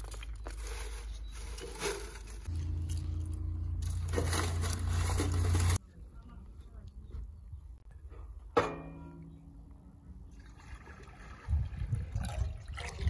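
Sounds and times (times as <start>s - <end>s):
steady low rumble: 2.4s - 7.9s.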